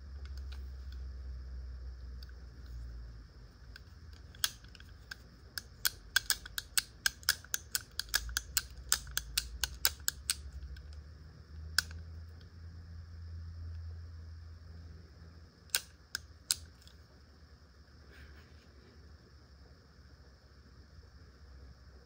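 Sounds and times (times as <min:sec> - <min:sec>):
pistol action metallic clicks: 0:04.2 - 0:10.4.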